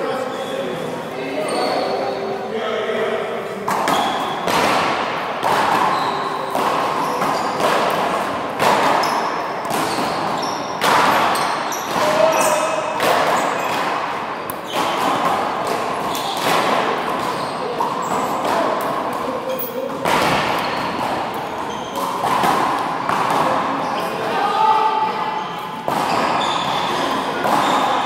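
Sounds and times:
handball hitting hands and wall: 3.7s - 19.2s, 19.9s - 23.7s, 25.8s - 28.0s.

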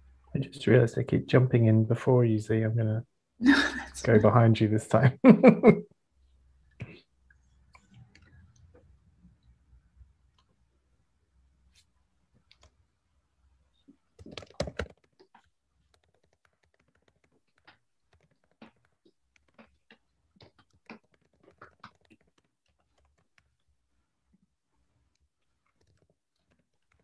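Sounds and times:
keyboard typing: 14.2s - 23.5s.

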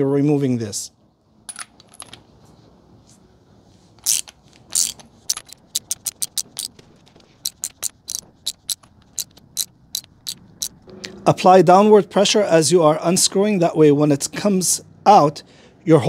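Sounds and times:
ratchet wrench clicking: 4.0s - 6.8s, 7.4s - 10.8s.

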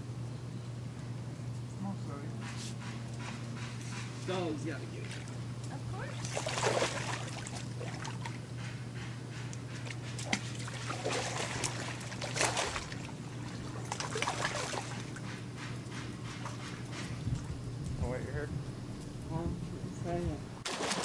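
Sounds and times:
steady low hum: 0.0s - 21.0s
pool water splashing: 6.0s - 8.5s, 9.9s - 15.2s, 20.6s - 21.0s.

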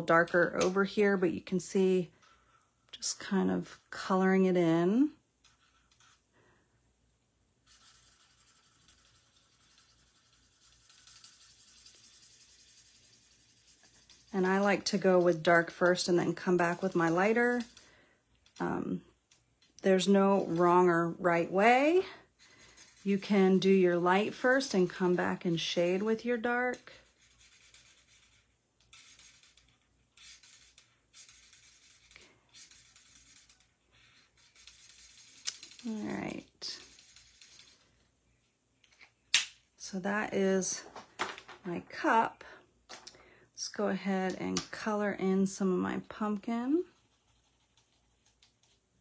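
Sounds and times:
marker scratching on cardstock: 5.4s - 6.2s, 7.6s - 17.8s, 22.6s - 37.8s, 46.8s - 48.8s.

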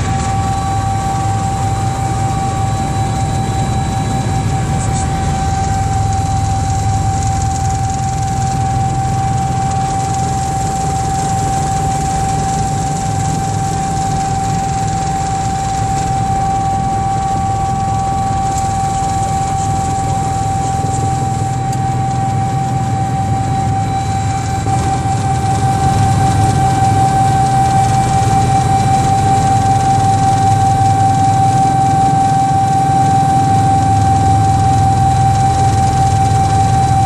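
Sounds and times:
helicopter rotor and engine drone: 0.0s - 37.0s
high-pitched turbine whine: 0.0s - 37.0s.

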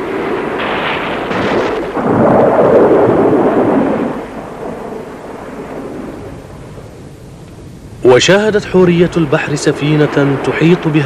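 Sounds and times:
thunder cracks: 0.0s - 6.9s, 9.2s - 11.0s
thunder rumbling: 0.0s - 11.0s.

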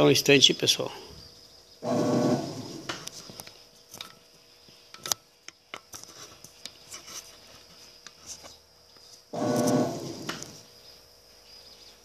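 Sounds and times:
loud rubbing handling noise: 1.8s - 3.3s, 9.3s - 10.7s.

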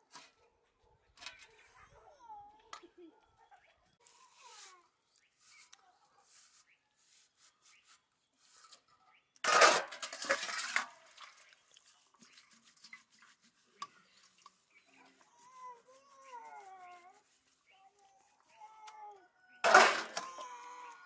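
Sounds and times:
straw scrubbing steel plates: 8.5s - 18.5s, 19.6s - 20.6s.

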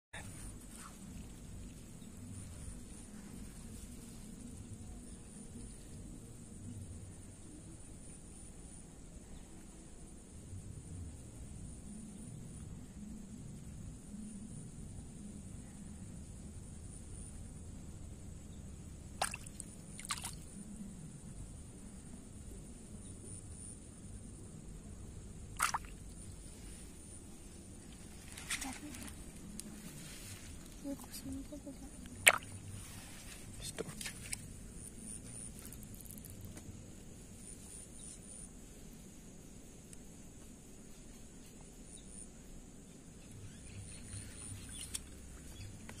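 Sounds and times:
faint low rumble: 0.2s - 46.0s
insects chirping: 0.2s - 46.0s
water splashing and dripping: 19.2s - 20.4s, 25.6s - 26.0s, 32.2s - 32.6s.

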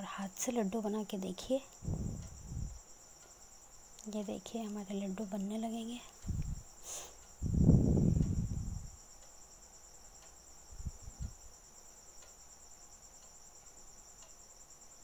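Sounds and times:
crickets trilling: 0.0s - 15.0s
dull low bumps: 1.8s - 2.8s, 6.2s - 6.7s, 7.4s - 9.0s.

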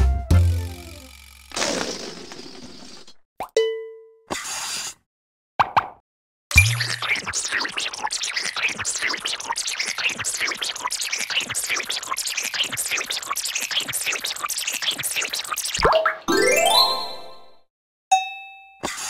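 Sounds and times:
bubbly pops and fizzes: 6.6s - 16.3s
rising chime: 16.3s - 17.6s.

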